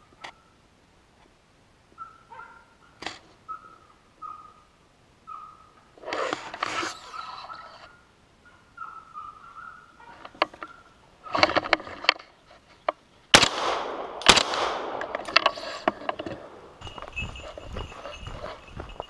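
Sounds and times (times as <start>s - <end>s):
gunshots with echo: 13.4s - 15.3s.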